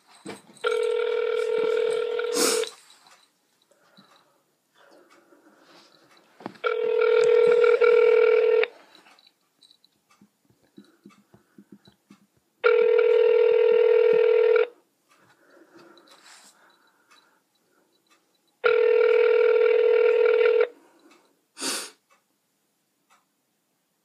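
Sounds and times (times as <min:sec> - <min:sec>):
telephone ringback tone: 0:00.6 - 0:02.7, 0:06.6 - 0:08.8, 0:12.6 - 0:14.7, 0:18.6 - 0:20.7.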